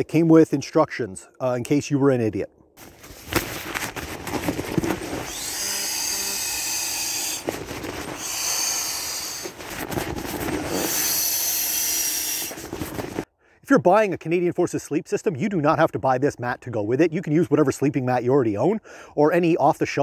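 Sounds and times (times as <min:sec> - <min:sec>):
rubbery rustling and clicks: 0:02.8 - 0:13.3.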